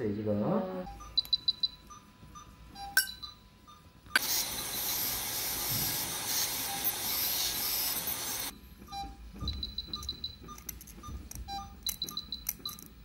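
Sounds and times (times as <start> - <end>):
compressed air hissing: 4.2 - 8.5.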